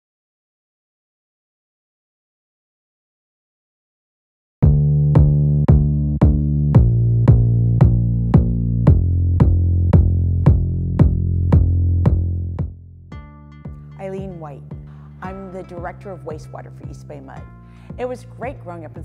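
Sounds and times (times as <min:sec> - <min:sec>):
electronic music with drum machine: 0:04.6 - 0:13.9.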